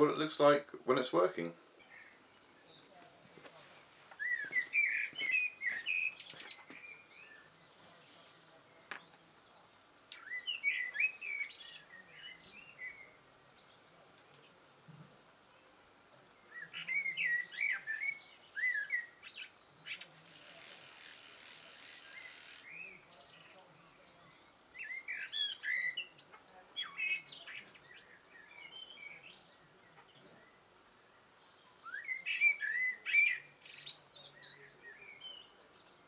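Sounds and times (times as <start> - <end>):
songbird chirping: 0.0 - 36.0
steady high hiss: 19.2 - 23.1.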